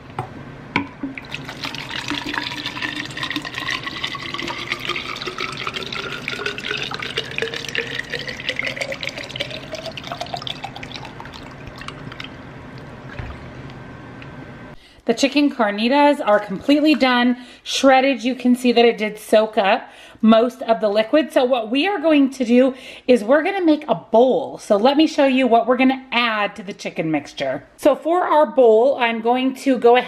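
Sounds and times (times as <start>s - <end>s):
water pouring into plastic bottle: 1.2s - 13.6s.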